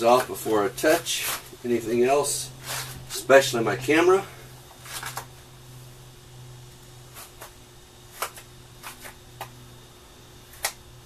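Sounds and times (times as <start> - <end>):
low steady hum: 0.0 - 11.0
gloves snapping and crackling: 7.2 - 9.6, 10.5 - 10.9.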